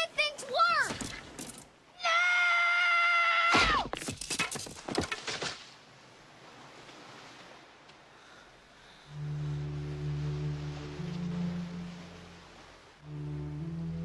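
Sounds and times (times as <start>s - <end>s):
boy screaming: 2.0s - 3.9s.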